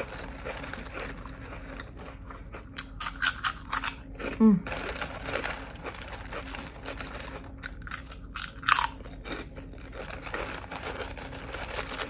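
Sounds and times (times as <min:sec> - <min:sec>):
person chewing food: 0:00.0 - 0:12.0.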